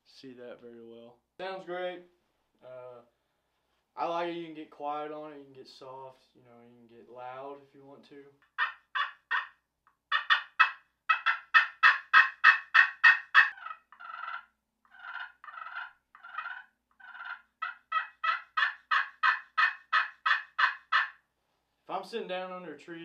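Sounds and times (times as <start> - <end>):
turkey call yelps: 8.4 - 21.2.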